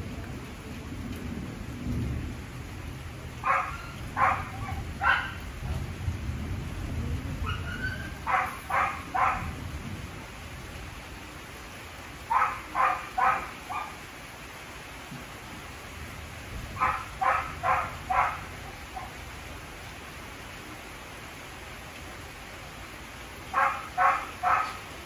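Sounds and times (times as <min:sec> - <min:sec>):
low rumble of thunder: 0:00.0 - 0:11.0, 0:15.9 - 0:19.6
heavy rain: 0:00.0 - 0:25.0
dog barking: 0:03.4 - 0:05.5, 0:07.4 - 0:09.6, 0:12.3 - 0:14.0, 0:16.8 - 0:19.2, 0:23.5 - 0:24.9.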